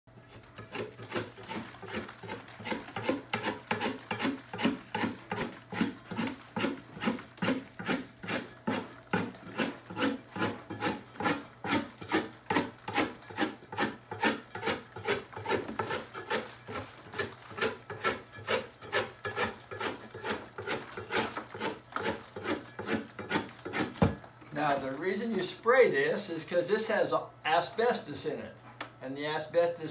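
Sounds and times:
hand scraper scraping ceiling: 0:00.3 - 0:24.1.

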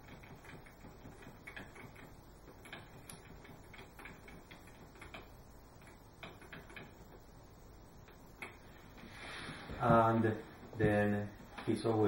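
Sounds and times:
light clicks and ticks: 0:00.0 - 0:07.2
low background noise: 0:00.0 - 0:12.0.

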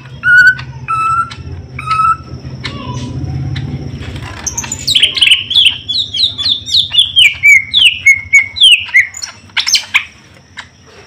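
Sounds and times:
bird whistling descending notes: 0:00.2 - 0:02.3.

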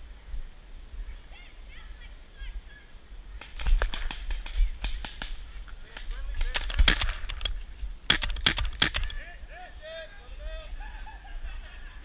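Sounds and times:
paintball markers firing: 0:03.4 - 0:09.2.

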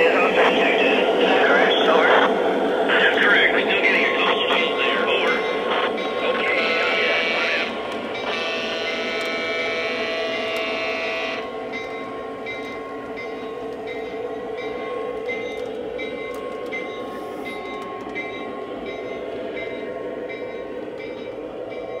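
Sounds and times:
model train running rumble: 0:00.0 - 0:22.0
model train horn: 0:06.5 - 0:11.5.

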